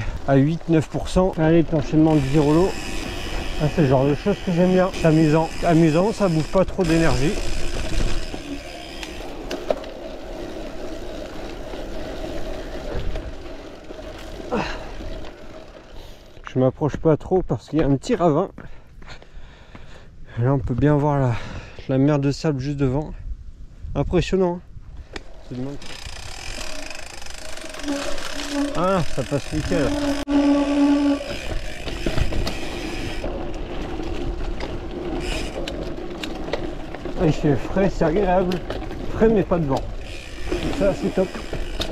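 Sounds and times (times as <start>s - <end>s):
bike rattle: 0.0s - 16.4s, 25.2s - 41.9s
bike tyres on dirt trail: 0.0s - 21.8s, 24.7s - 41.9s
bicycle freewheel buzzing: 1.5s - 16.3s, 25.8s - 37.3s, 38.1s - 41.9s.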